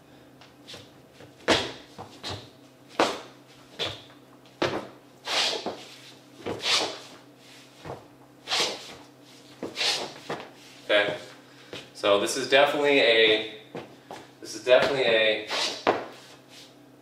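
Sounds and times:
sneakers stepping on dance floor: 0:00.4 - 0:11.9, 0:13.3 - 0:16.4
sneakers sliding on dance floor: 0:00.4 - 0:12.0, 0:13.7 - 0:16.8.

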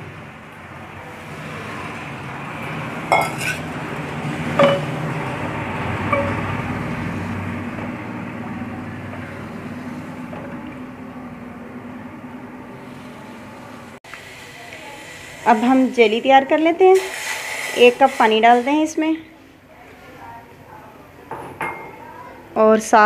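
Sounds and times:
steady background noise: 0:00.0 - 0:23.0
spoon knocking on pot: 0:04.6 - 0:05.0, 0:06.1 - 0:06.5.

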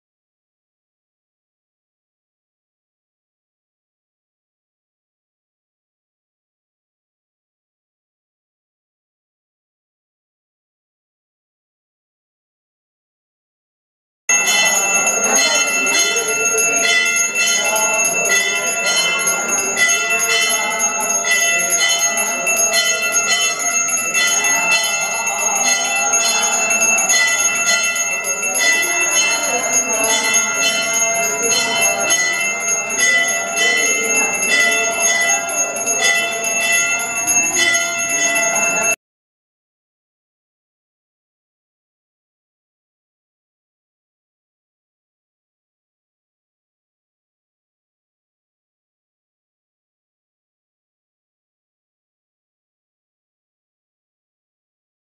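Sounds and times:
faint voices: 0:14.3 - 0:39.0
hand bell ringing: 0:14.3 - 0:39.0.

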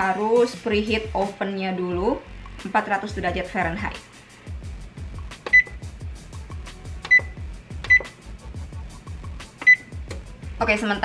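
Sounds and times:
background music: 0:00.0 - 0:11.0
oven control panel beeps: 0:05.5 - 0:05.8, 0:07.0 - 0:08.2, 0:09.6 - 0:10.0.

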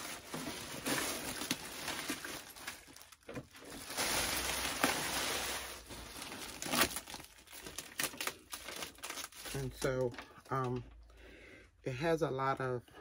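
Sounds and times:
plastic wrapping crinkling: 0:00.0 - 0:11.0.

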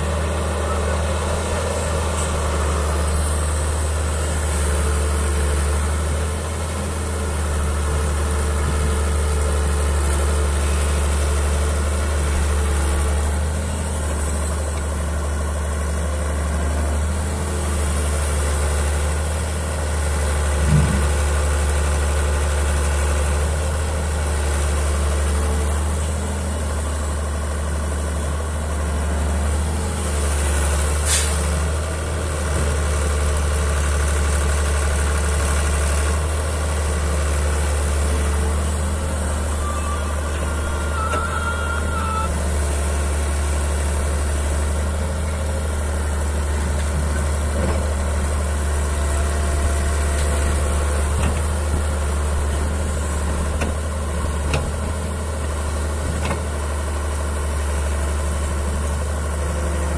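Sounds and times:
excavator diesel engine running: 0:00.0 - 0:59.9.

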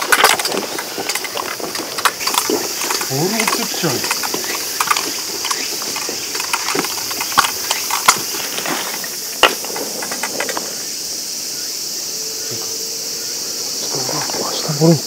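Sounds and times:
clicks and knocks: 0:00.0 - 0:10.7
high-pitched insect chorus: 0:00.0 - 0:15.0.

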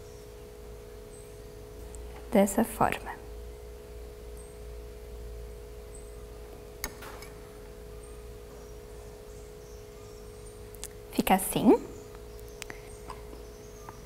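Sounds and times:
faint hum of held tones: 0:00.0 - 0:14.0.

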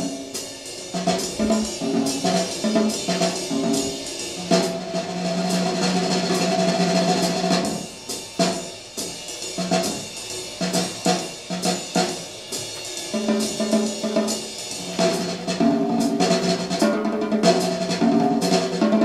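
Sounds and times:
drum-led music on loudspeakers: 0:00.0 - 0:19.0.

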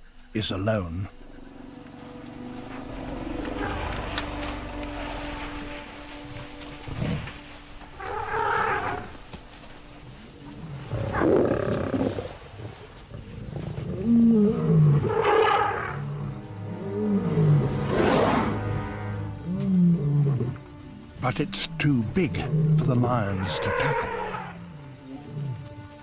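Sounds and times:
lioness growling: 0:02.6 - 0:05.1, 0:10.6 - 0:18.6.

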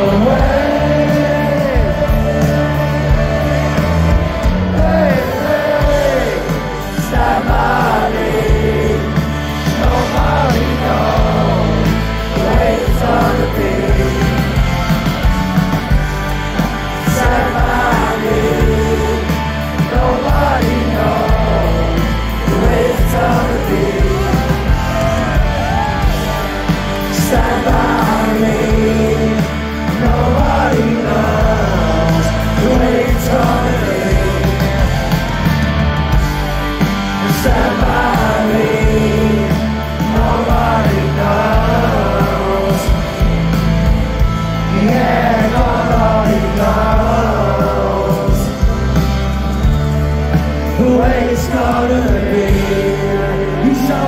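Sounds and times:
loud rock band music: 0:00.0 - 0:54.0
person singing: 0:17.0 - 0:35.2.

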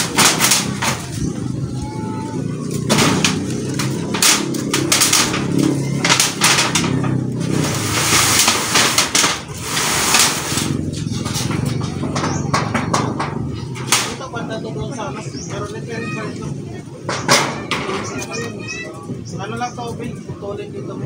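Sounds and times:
metal roofing sheets knocking: 0:00.0 - 0:01.2, 0:02.8 - 0:14.3
metal scraping: 0:02.5 - 0:14.4.

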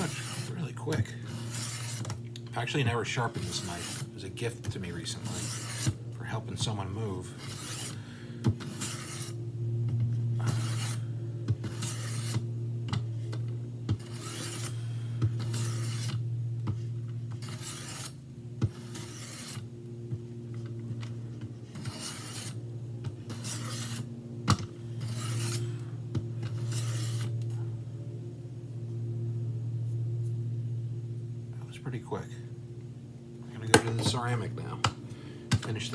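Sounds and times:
knife rasping on sharpener: 0:00.0 - 0:02.1, 0:03.2 - 0:04.1, 0:05.0 - 0:06.0, 0:07.4 - 0:08.0, 0:08.6 - 0:09.4, 0:10.4 - 0:11.0, 0:11.7 - 0:12.4, 0:14.0 - 0:14.8, 0:15.4 - 0:16.2, 0:17.4 - 0:18.1, 0:18.8 - 0:19.6, 0:21.8 - 0:22.6, 0:23.3 - 0:24.0, 0:25.0 - 0:25.6, 0:26.6 - 0:27.3
low hum: 0:00.0 - 0:35.9.

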